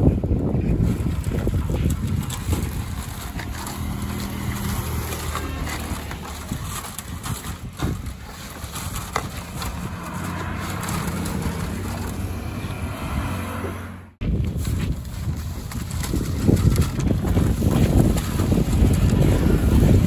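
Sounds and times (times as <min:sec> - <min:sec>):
knocks and scrapes: 0:00.0 - 0:20.0
wet concrete being tipped: 0:00.7 - 0:13.0
engine running: 0:01.4 - 0:14.2.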